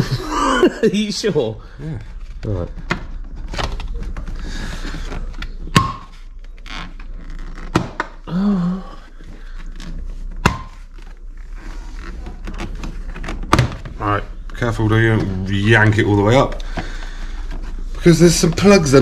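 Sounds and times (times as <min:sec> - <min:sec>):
plastic scraping: 0:02.0 - 0:08.2, 0:09.1 - 0:19.0.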